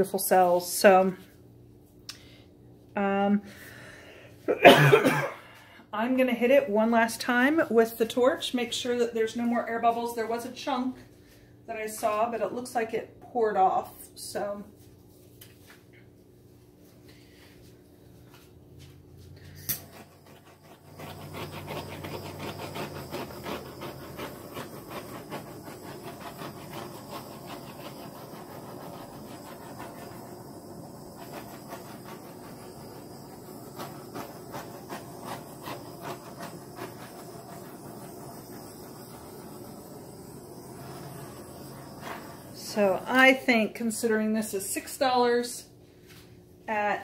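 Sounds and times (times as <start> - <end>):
torch flame hissing: 19.3 - 45.0.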